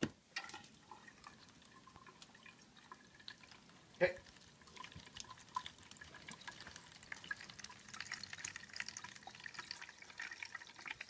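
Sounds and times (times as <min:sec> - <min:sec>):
water trickling into plastic tub: 0:00.0 - 0:11.0.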